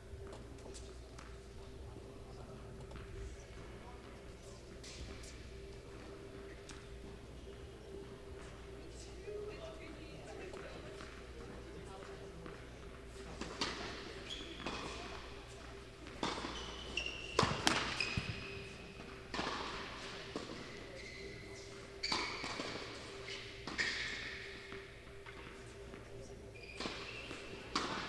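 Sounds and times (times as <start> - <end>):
ball bouncing on court: 16.2 - 18.6
tennis ball hit by racket: 17.4 - 18.4.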